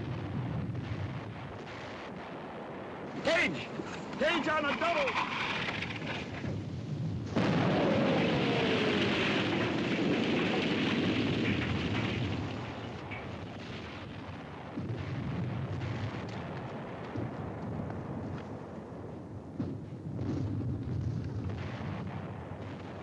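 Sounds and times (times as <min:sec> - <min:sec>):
artillery shell explosion: 0:00.0 - 0:17.4
smaller explosion burst: 0:05.5 - 0:17.6.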